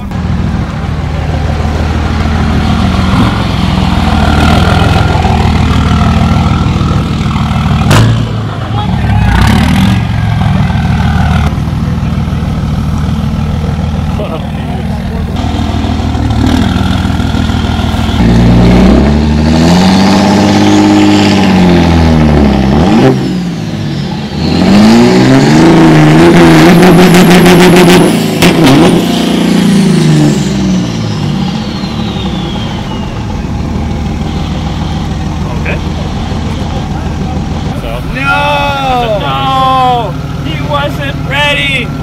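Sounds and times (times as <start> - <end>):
diesel truck engine revving: 0.0 - 42.0
turbo whistle: 31.1 - 33.5.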